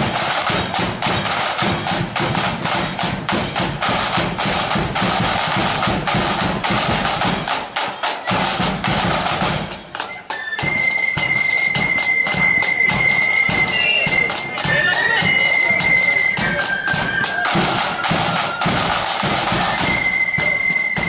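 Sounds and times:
side drums with rolls: 0.0s - 21.0s
flutes holding high note: 10.0s - 21.0s.

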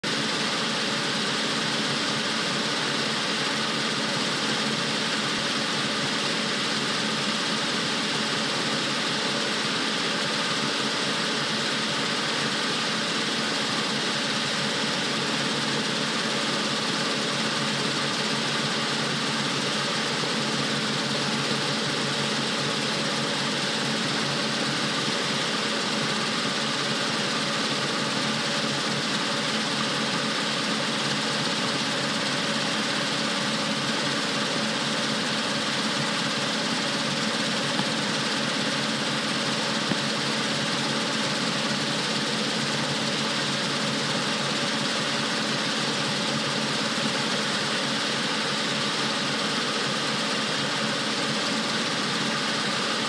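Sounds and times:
helicopter engine and rotor: 0.0s - 53.0s.

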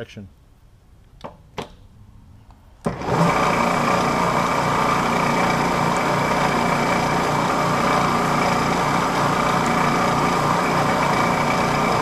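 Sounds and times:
milling machine spindle motor running: 2.9s - 12.0s.

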